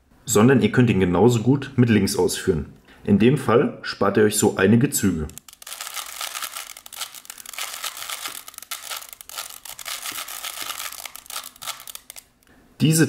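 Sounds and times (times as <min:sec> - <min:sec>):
puzzle cube clicking: 0:05.3 - 0:12.4.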